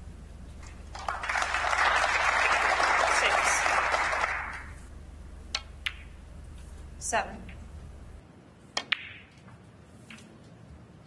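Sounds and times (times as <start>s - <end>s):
audience applauding: 0.6s - 4.8s.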